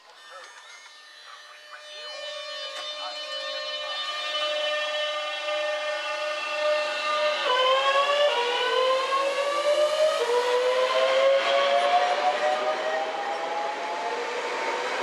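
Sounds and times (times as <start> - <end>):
electric train motors whining: 0.1 - 15.0.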